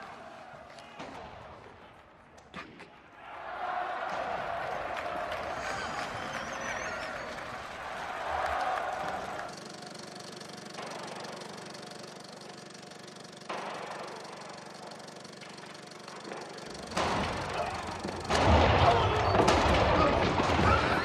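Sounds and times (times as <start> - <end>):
film projector whirring: 4.5 - 21.0.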